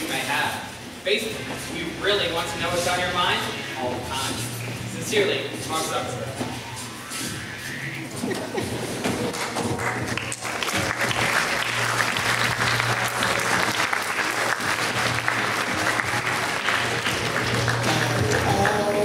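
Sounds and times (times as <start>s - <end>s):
audience applauding: 9.0s - 19.0s.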